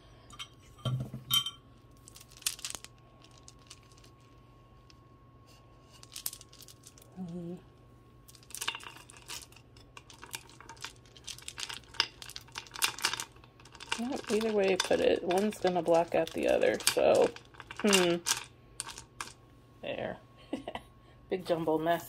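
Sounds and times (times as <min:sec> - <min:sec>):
beads clicking and clattering: 0:01.9 - 0:04.4, 0:05.9 - 0:07.4, 0:08.3 - 0:19.4.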